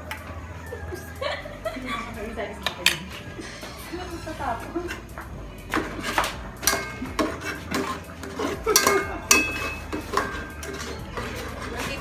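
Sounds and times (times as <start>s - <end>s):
utensil clinking against metal pot: 4.8s - 12.0s.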